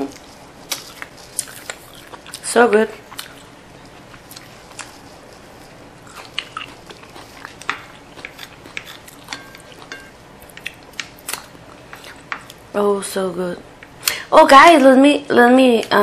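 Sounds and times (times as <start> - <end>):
close chewing: 0.0 - 12.6
chopsticks tapping ceramic plate: 7.4 - 12.6.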